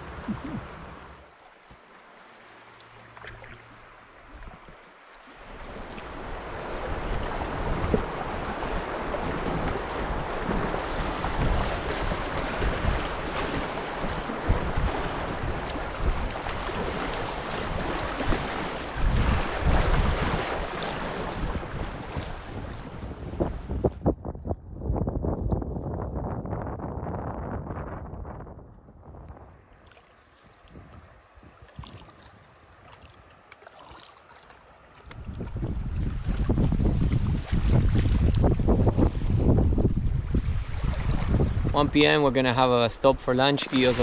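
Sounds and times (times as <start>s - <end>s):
wind buffeting microphone: 5.6s - 32.6s, 35.0s - 43.2s
river water rushing: 29.8s - 35.1s, 43.3s - 44.0s.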